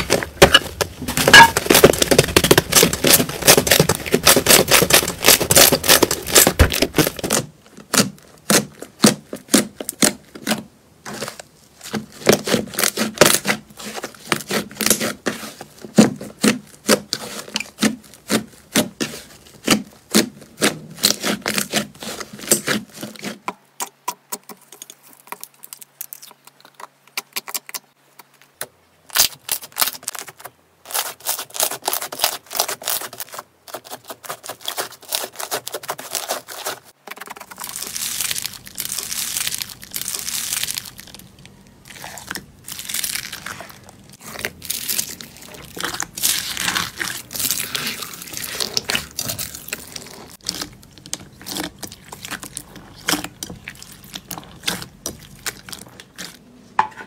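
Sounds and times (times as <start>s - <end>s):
slime squishing and popping: 0.0s - 10.6s, 37.1s - 56.4s.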